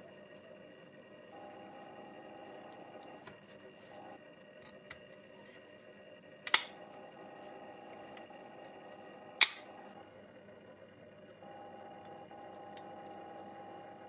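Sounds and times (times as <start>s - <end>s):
plastic parts clicking together: 6.5s - 6.7s.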